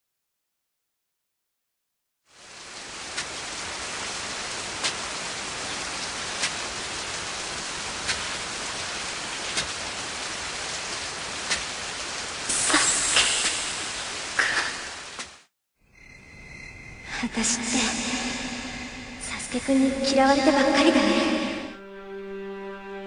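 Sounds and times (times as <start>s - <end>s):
steady rain-like hiss: 2.2s - 15.5s, 17.0s - 21.7s.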